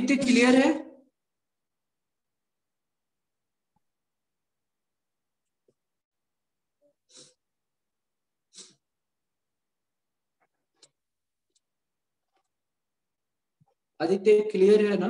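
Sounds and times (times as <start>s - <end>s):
short breaths close to microphone: 7.0s - 7.5s, 8.5s - 8.9s.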